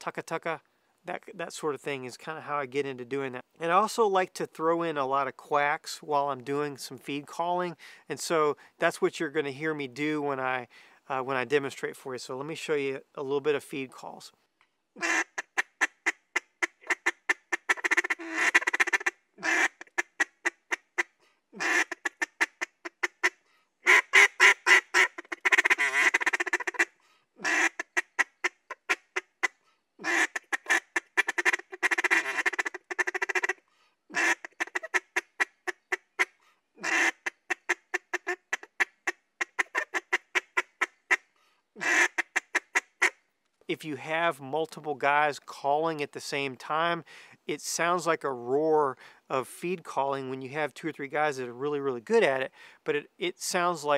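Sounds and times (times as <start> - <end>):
duck call clucks and quacks: 15.0 - 43.2.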